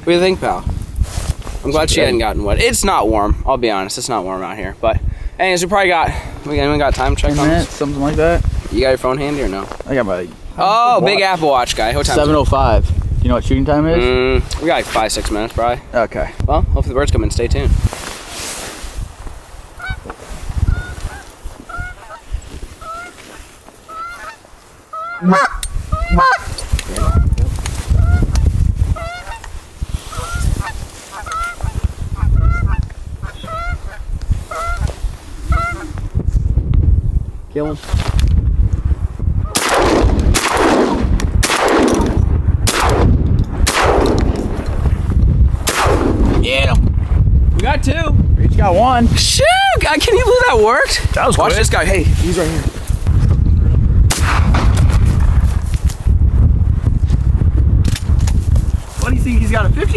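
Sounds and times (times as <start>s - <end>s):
geese honking: 19.8s - 20.0s, 20.6s - 27.3s, 28.0s - 28.3s, 29.0s - 29.5s, 30.1s - 34.9s, 35.5s - 35.9s
shotgun blasts echoing: 39.5s - 44.6s, 45.7s - 46.4s, 54.1s - 55.0s.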